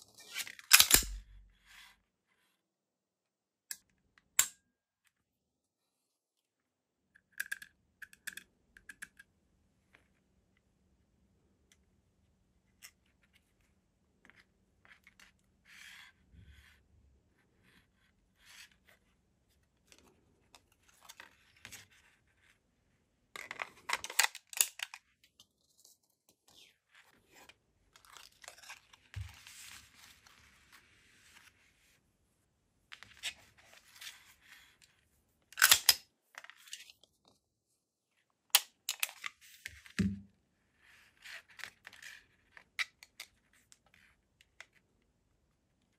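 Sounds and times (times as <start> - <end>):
pistol metallic clicks and clacks: 0.7 - 1.2.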